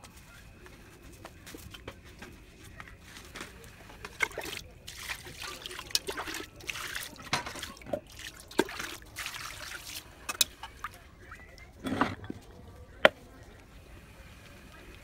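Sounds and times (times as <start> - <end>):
water trickling and splashing: 3.3 - 11.8.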